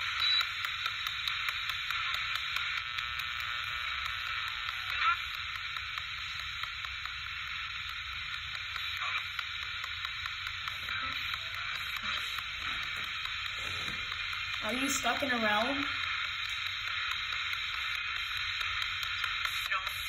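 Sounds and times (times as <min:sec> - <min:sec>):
radio static hiss: 0:00.0 - 0:20.0
radio voice snatches: 0:10.6 - 0:16.0, 0:19.2 - 0:20.0.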